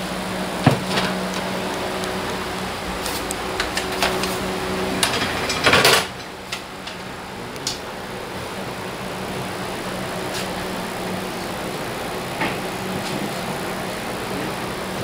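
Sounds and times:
servo motor humming: 0:00.0 - 0:05.4.

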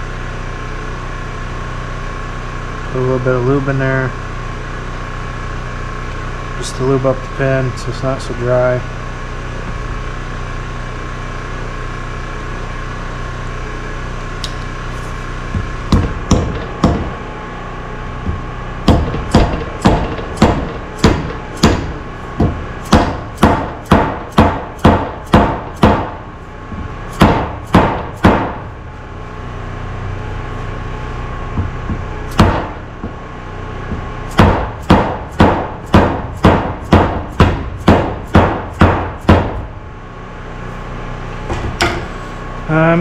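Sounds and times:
hammer striking metal pin: 0:18.9 - 0:26.1, 0:41.5 - 0:42.1.

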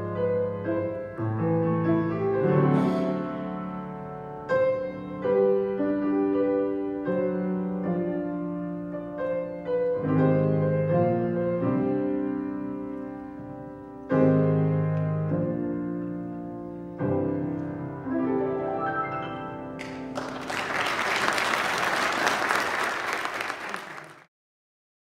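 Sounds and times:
grand piano chords: 0:00.0 - 0:22.1
audience applauding: 0:19.8 - 0:24.3.

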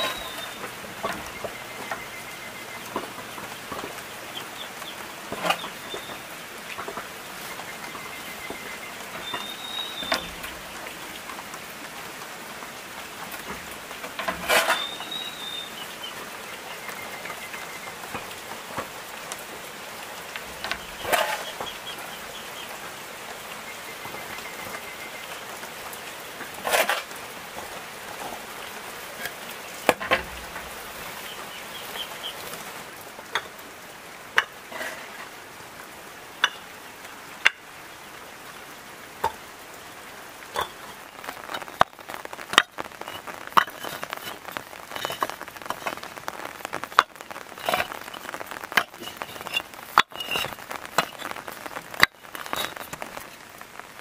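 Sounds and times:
steady hiss: 0:00.0 - 0:54.0.

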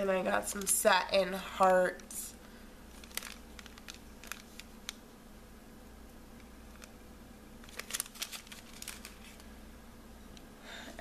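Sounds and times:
faint steady hum: 0:00.0 - 0:11.0
plastic packaging crinkling: 0:02.9 - 0:05.0, 0:06.4 - 0:07.0, 0:07.6 - 0:09.6.

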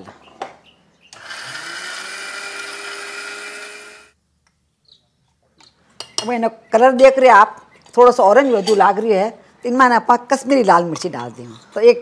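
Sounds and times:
mixer grinder whining: 0:01.2 - 0:04.2.

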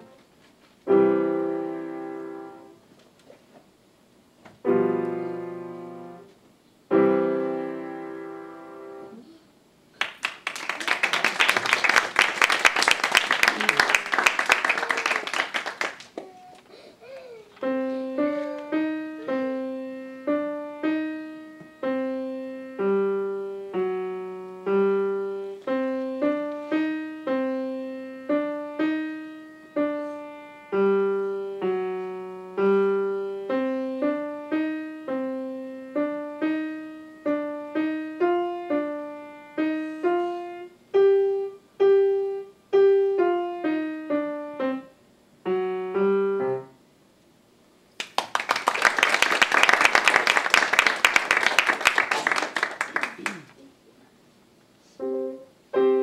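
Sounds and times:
slow grand piano notes: 0:00.8 - 0:02.8, 0:04.6 - 0:09.4, 0:17.0 - 0:46.8, 0:55.0 - 0:56.0
applause: 0:10.0 - 0:16.2, 0:48.0 - 0:53.6.

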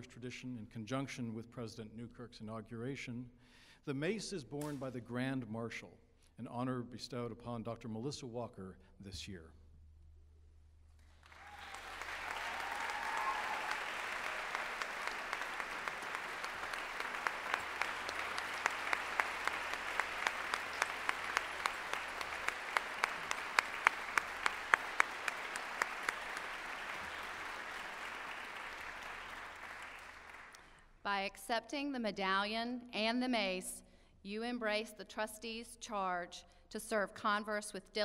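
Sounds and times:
audience applauding: 0:11.1 - 0:30.6.

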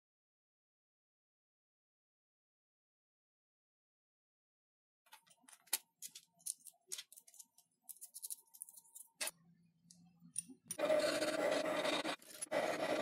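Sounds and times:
metal parts clicking and tapping: 0:05.1 - 0:09.3
hand file rasping: 0:10.8 - 0:13.0.

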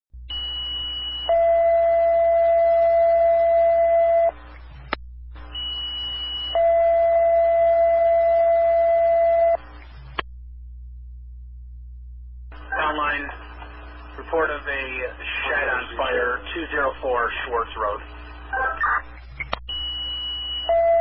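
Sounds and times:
radio click: 0:17.6 - 0:19.7.

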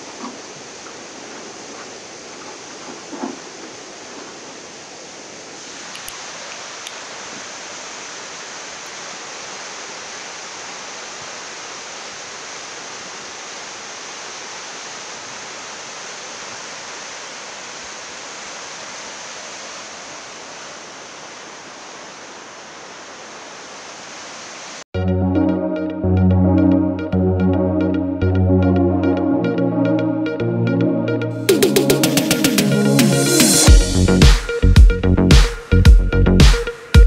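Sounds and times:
muddy water torrent rushing: 0:00.0 - 0:24.9.

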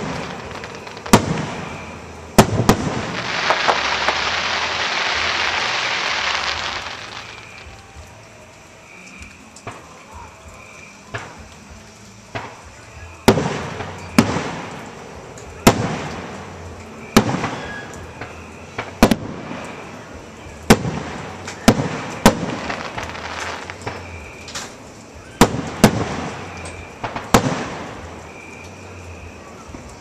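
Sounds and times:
firework shells bursting: 0:00.0 - 0:07.7, 0:20.7 - 0:24.8.

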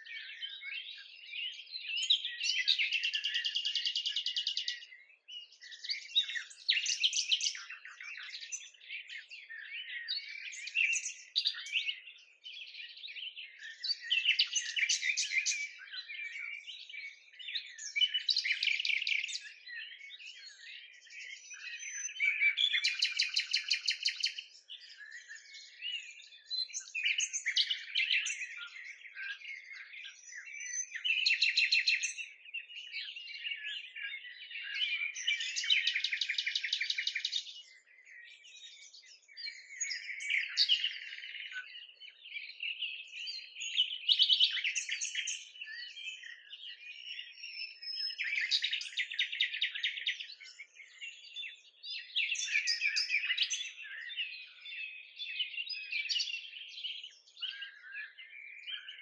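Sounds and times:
songbirds singing: 0:00.0 - 0:59.0.

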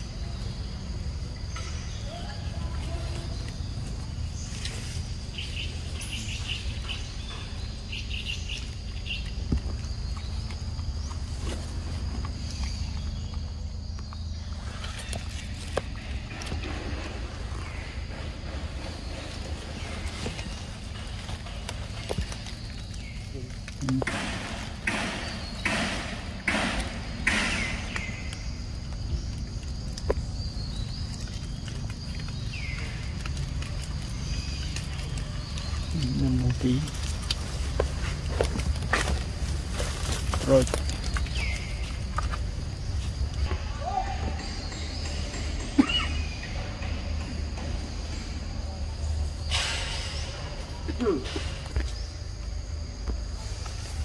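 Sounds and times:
chirping: 0:00.0 - 0:52.6
high insect drone: 0:00.0 - 0:54.0
footsteps crunching dry leaves: 0:27.6 - 0:44.6.

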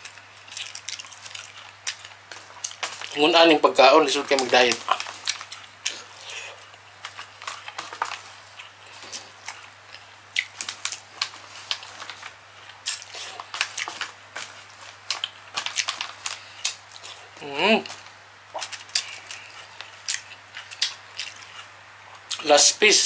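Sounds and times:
chewing and wet mouth smacks: 0:00.0 - 0:03.2, 0:04.4 - 0:22.4
fingers clicking on foil tray: 0:00.0 - 0:05.5, 0:12.9 - 0:16.8.

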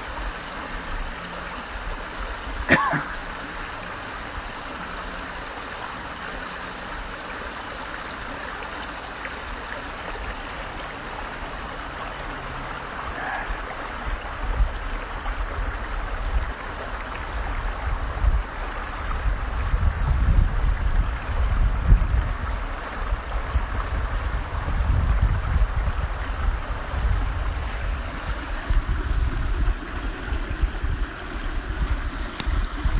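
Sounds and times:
creek flowing over stones: 0:00.0 - 0:32.9
wind buffeting microphone: 0:17.8 - 0:32.9.

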